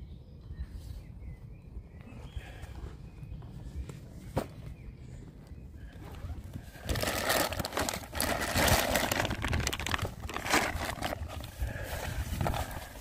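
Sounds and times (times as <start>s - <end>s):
plastic bags crinkling: 6.8s - 13.0s.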